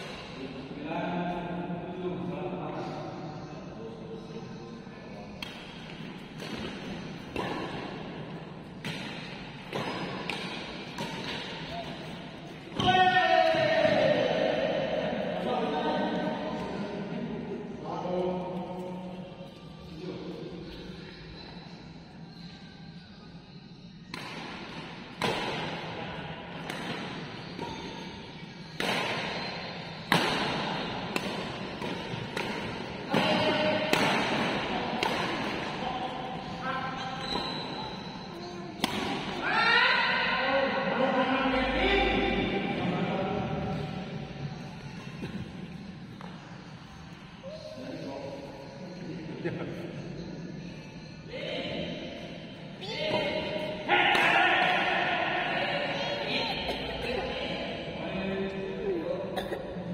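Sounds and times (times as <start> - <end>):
racket striking shuttlecock: 8.8 - 11.7, 24.1 - 25.8, 26.6 - 28.0, 28.6 - 29.4, 30.0 - 35.8, 38.8 - 39.4.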